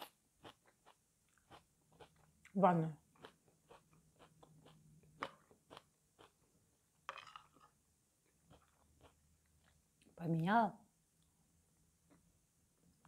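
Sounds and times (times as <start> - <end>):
chewing with crisp clicks: 0.0 - 6.4, 8.3 - 10.1.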